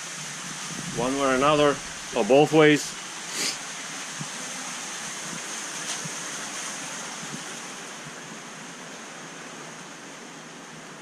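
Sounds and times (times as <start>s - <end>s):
water rushing through plumbing: 0.0s - 8.1s.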